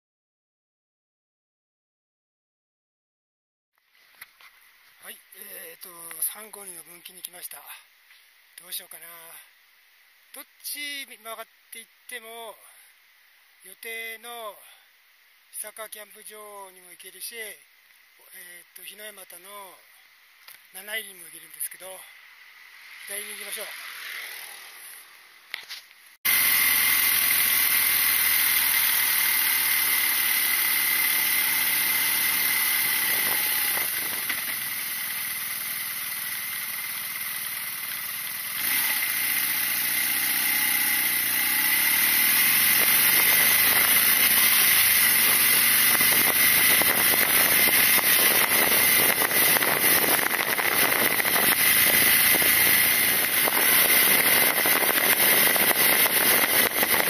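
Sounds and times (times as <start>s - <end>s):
wind and road noise: 22.2s - 27.1s, 31.6s - 35.9s, 40.5s - 57.0s
motorcycle engine running: 26.3s - 57.0s.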